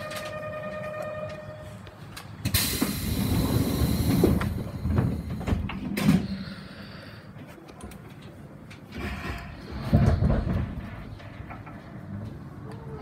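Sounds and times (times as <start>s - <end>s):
loud hiss of air: 2.5s - 5.6s.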